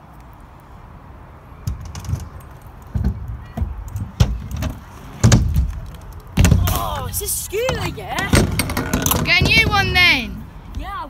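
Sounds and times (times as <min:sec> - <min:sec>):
scooter frame rattling: 0:01.6 - 0:10.4
scooter wheels rumbling on concrete: 0:01.6 - 0:11.0.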